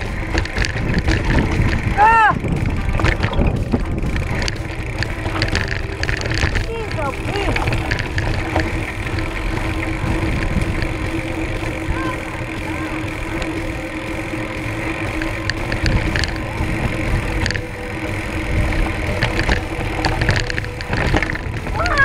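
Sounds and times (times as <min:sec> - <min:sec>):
wind rushing over microphone: 0:00.0 - 0:13.6
bike clicks and rattles: 0:00.0 - 0:22.0
tyres crunching on gravel: 0:00.0 - 0:22.0.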